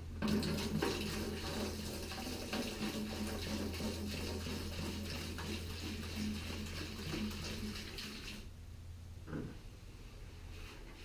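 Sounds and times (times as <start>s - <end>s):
steady low hum: 0.0s - 11.0s
liquid splashing and trickling: 0.2s - 8.5s.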